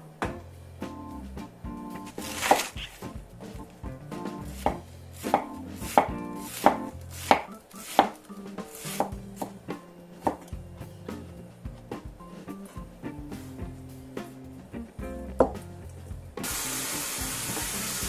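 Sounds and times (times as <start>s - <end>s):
knife chopping cabbage on wooden board: 2.2s - 2.9s, 4.6s - 9.6s.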